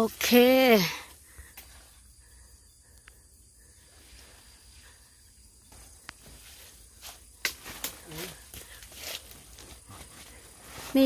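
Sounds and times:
leaves and twigs rustling: 0:05.7 - 0:11.0.

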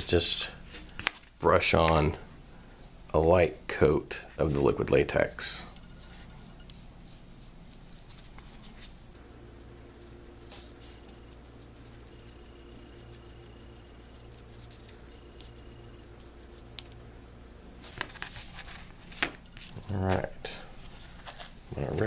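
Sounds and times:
steady low hum: 0:00.0 - 0:22.0
paintbrush scratching and dabbing: 0:05.9 - 0:19.0.

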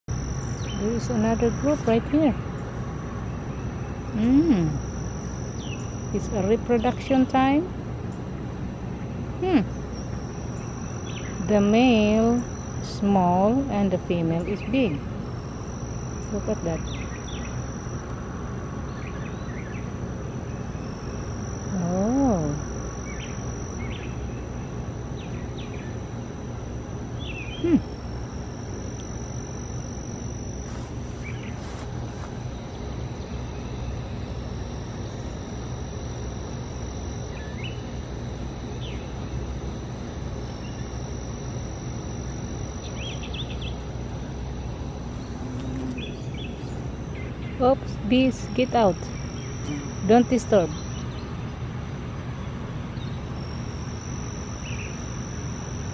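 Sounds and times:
low hum: 0:00.0 - 0:55.9
high insect-like tone: 0:00.1 - 0:07.7, 0:09.4 - 0:55.9
low wavering tone: 0:04.0 - 0:07.7, 0:09.4 - 0:55.9.

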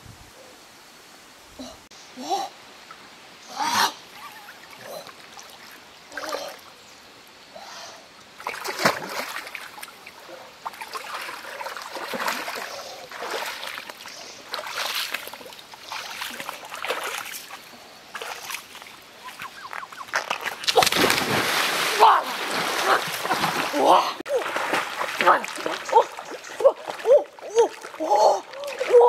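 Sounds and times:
water splashing around wading person: 0:08.4 - 0:29.0.

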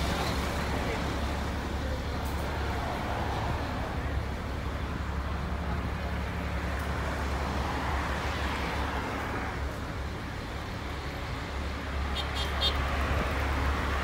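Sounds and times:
road traffic: 0:00.0 - 0:14.0.

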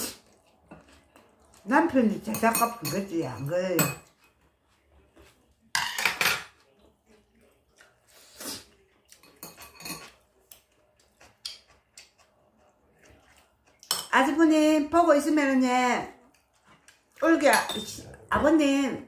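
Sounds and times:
metal spoon clinking on dish: 0:02.3 - 0:04.2, 0:09.2 - 0:10.2, 0:13.8 - 0:14.2, 0:17.5 - 0:18.0.

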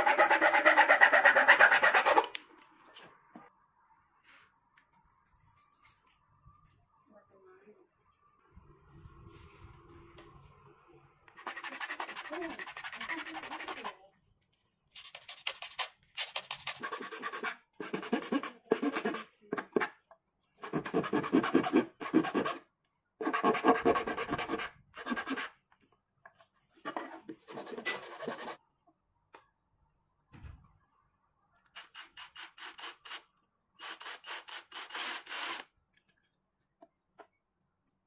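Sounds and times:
metal file rasping on wood: 0:00.0 - 0:02.3.

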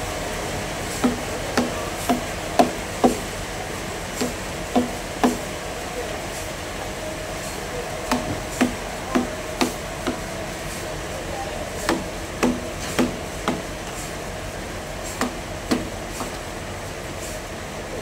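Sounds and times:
steady background hum: 0:00.0 - 0:18.0
hammer striking chisel: 0:01.0 - 0:03.2, 0:04.2 - 0:05.4, 0:08.1 - 0:10.2, 0:11.9 - 0:13.6, 0:15.2 - 0:16.4.

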